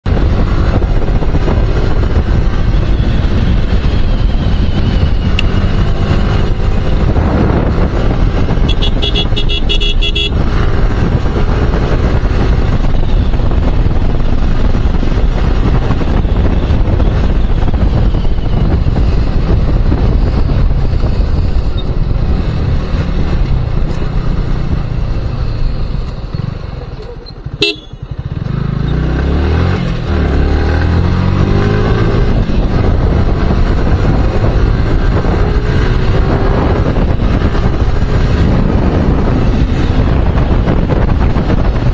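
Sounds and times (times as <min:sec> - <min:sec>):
wind on microphone: 0:00.0 - 0:41.9
motorcycle engine running: 0:00.1 - 0:41.9
horn beeping rapidly: 0:08.6 - 0:10.5, 0:27.5 - 0:28.1.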